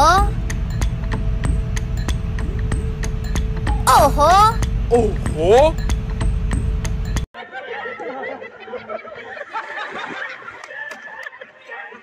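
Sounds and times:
group of people laughing: 7.4 - 12.0.

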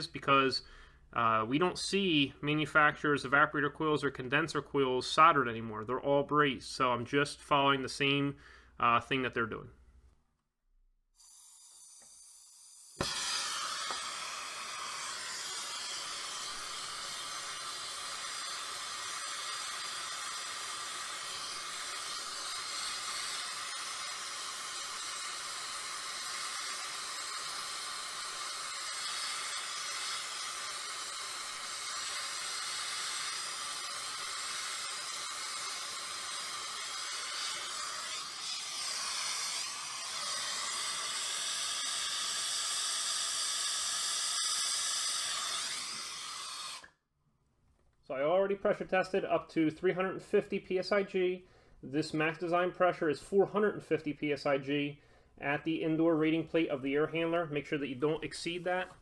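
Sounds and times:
torch flame hissing: 11.2 - 46.9.

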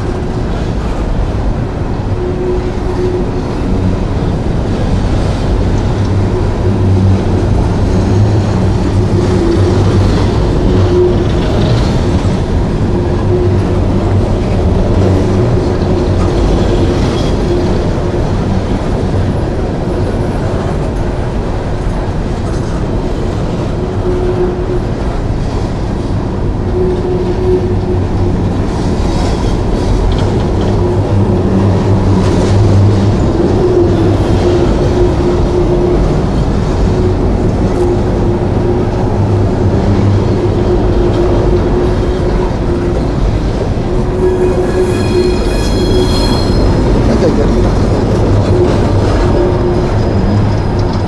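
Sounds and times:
steel wheels rumbling on rails: 0.0 - 51.0
humming tone: 26.6 - 51.0.

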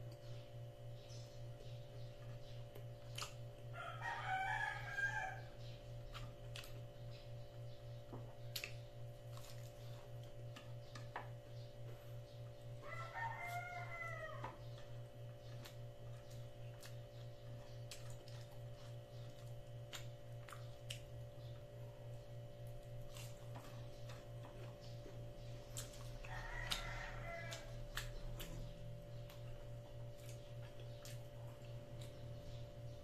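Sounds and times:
steady low hum: 0.0 - 33.0
rooster crowing: 3.7 - 5.6, 12.8 - 14.6, 26.1 - 28.3.

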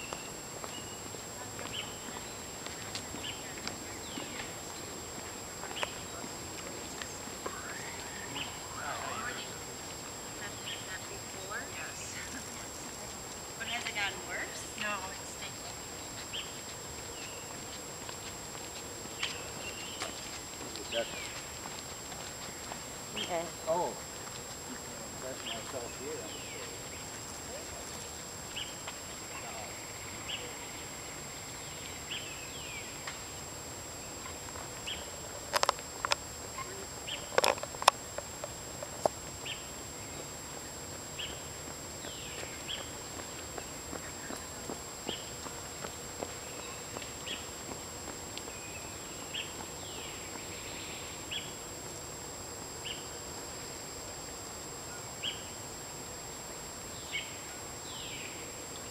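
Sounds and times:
small birds chirping: 0.0 - 33.5, 34.1 - 38.0
steady hiss: 0.0 - 58.9.

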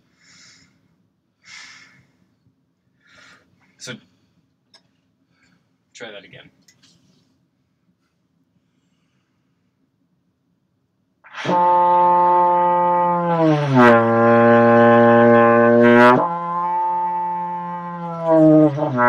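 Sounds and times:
trombone playing low notes: 11.3 - 19.0.

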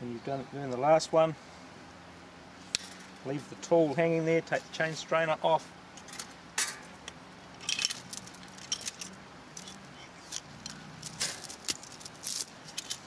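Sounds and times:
metal chain clinking: 7.6 - 13.0.

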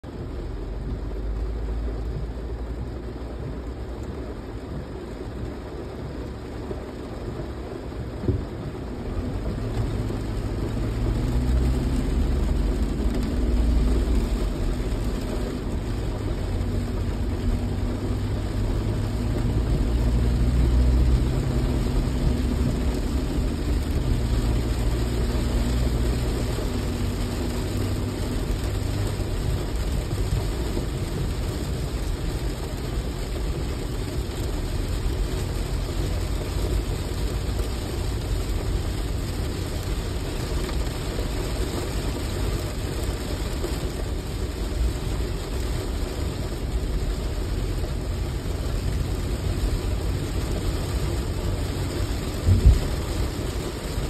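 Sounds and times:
car engine and road noise: 0.0 - 54.0
rain hissing on car: 0.0 - 54.0.

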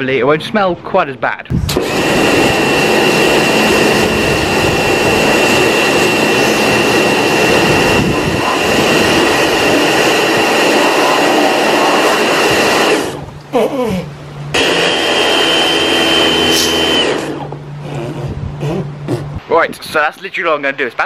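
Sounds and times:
high whine: 0.0 - 21.0
pressure washer spraying: 1.8 - 13.2, 14.6 - 17.5.

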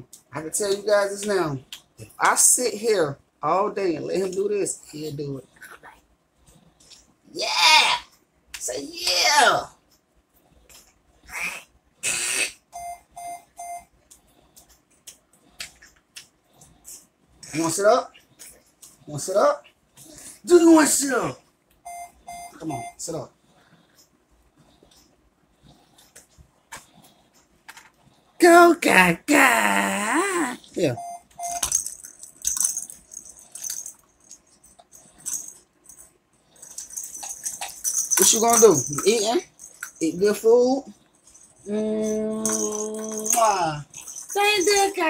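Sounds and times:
short electronic beeps: 12.8 - 13.9, 21.9 - 23.0, 31.0 - 31.7
plastic baby rattle shaking: 31.6 - 36.0, 36.6 - 40.2, 41.2 - 45.0.

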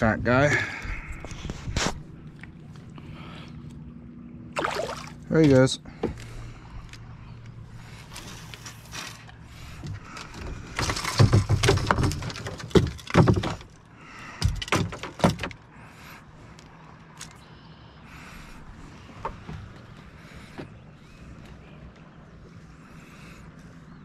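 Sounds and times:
fishing gear knocking and rattling: 8.8 - 15.7.

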